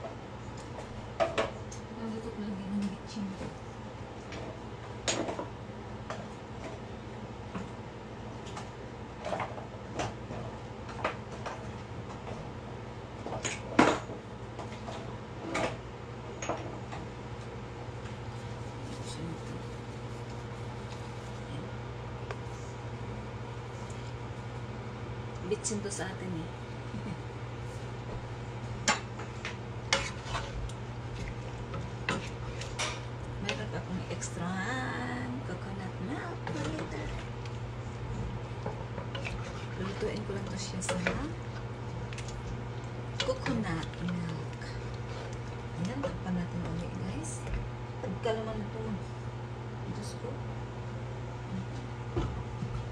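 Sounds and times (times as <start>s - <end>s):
steady low hum: 0.0s - 52.9s
wooden spatula stirring in a pan: 29.2s - 34.4s, 36.0s - 47.4s.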